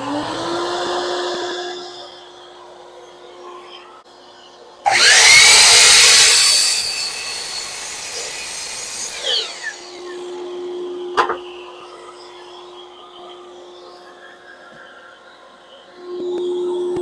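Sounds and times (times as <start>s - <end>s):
miter saw cutting wood: 0.0s - 2.4s, 4.8s - 12.2s.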